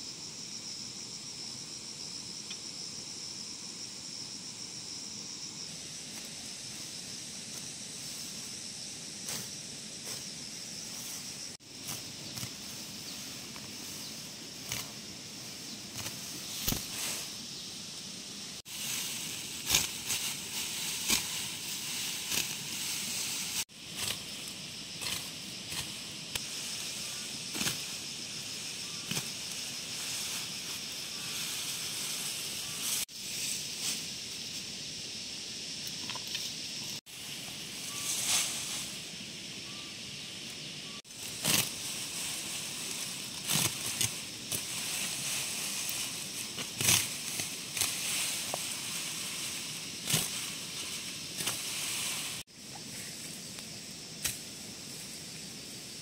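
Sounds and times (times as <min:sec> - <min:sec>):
grass rustling and crackling: 0:05.0 - 0:34.8, 0:35.7 - 0:56.0
sickle slicing grass: 0:09.2 - 0:15.0, 0:15.9 - 0:17.4, 0:18.6 - 0:34.1, 0:41.1 - 0:52.5, 0:54.2 - 0:54.5.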